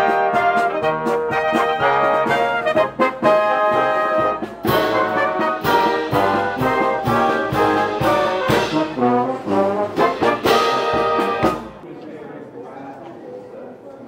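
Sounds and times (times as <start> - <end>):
marching band playing: 0.0 - 11.8.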